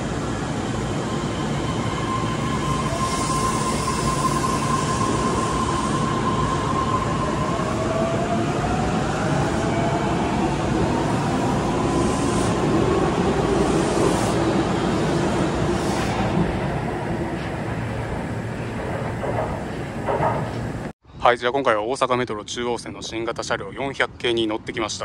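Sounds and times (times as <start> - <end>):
train electrical whine: 0.0 - 20.9
train running gear rumble: 14.9 - 20.9.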